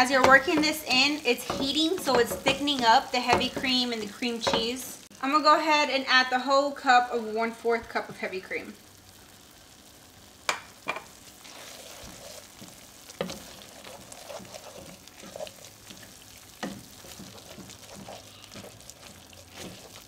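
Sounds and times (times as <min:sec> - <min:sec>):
masher knocking against pan: 0:00.0 - 0:03.8
soft sizzle in pan: 0:00.0 - 0:20.0.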